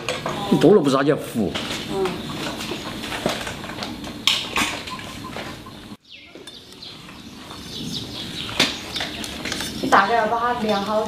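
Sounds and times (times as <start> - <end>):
hard sugar clicking and scraping: 8.2 - 11.0.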